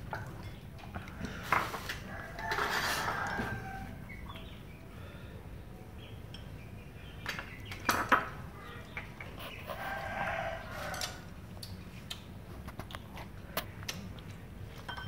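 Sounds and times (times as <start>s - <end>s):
tableware clinking: 14.8s - 15.0s.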